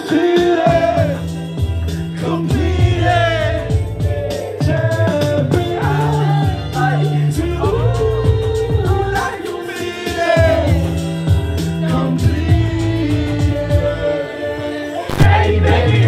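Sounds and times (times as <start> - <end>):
male voice singing: 0.0 - 1.3, 2.2 - 16.0
hip-hop backing track: 0.0 - 16.0
loud beat hit: 15.1 - 16.0.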